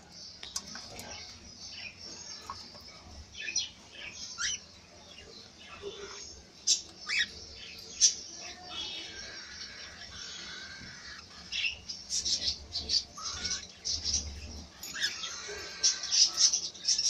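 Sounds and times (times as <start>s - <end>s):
cockatiels squawking: 5.9s - 7.4s, 8.0s - 14.2s, 14.8s - 17.0s.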